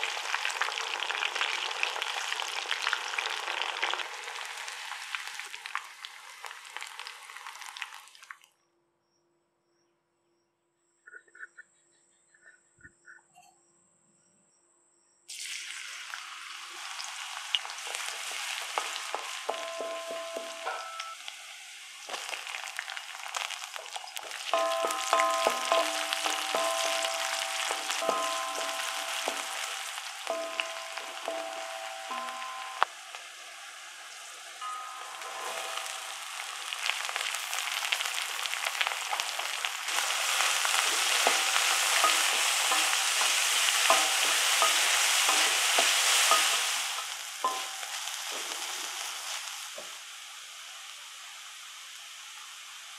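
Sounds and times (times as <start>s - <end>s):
garlic sizzling in hot oil: 0.0s - 8.5s, 15.3s - 52.9s
spatula scraping and clinking pan: 17.9s - 21.2s, 24.2s - 32.8s, 34.6s - 36.2s, 39.9s - 48.8s.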